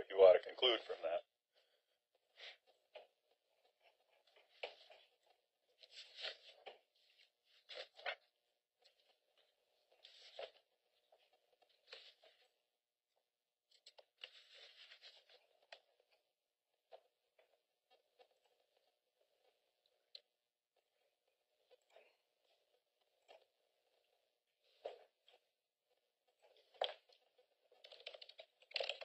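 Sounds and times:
papers rustling: 0:03.8 - 0:12.6, 0:13.7 - 0:16.2.

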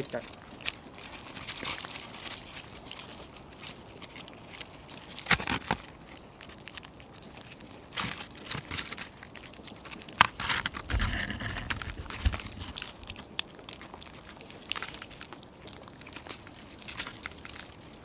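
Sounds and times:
kitten chewing and licking: 0:00.0 - 0:18.0
clicks and scrapes on plate: 0:10.2 - 0:12.8.

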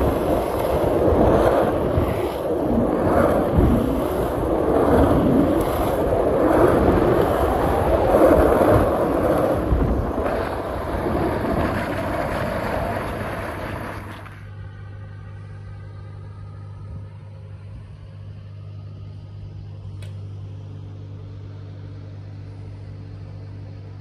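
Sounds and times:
wind rushing on microphone: 0:00.0 - 0:14.2.

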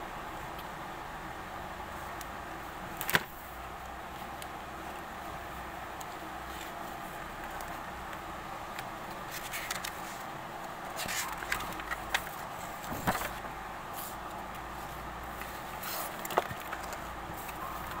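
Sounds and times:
steady background hiss: 0:00.0 - 0:18.0
paper rustling: 0:09.0 - 0:10.3, 0:10.9 - 0:18.0.

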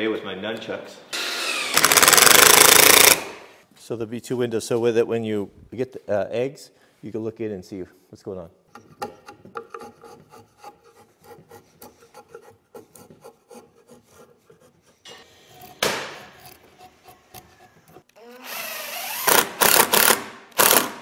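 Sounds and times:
impact driver whining: 0:01.2 - 0:03.4
hand tool scraping wood: 0:08.8 - 0:18.1.

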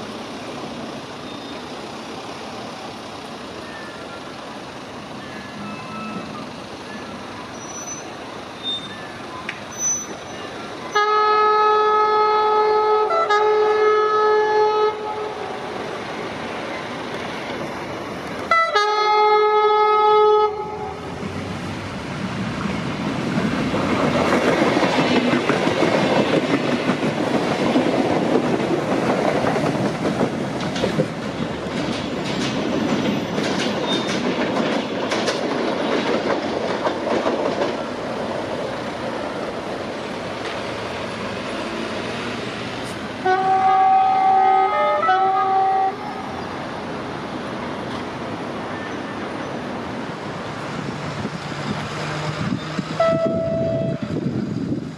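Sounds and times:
train wheels rumbling on rails: 0:00.0 - 0:54.9
train horn blasts: 0:10.9 - 0:15.6, 0:18.5 - 0:21.0, 0:43.2 - 0:46.2, 0:53.0 - 0:54.0.

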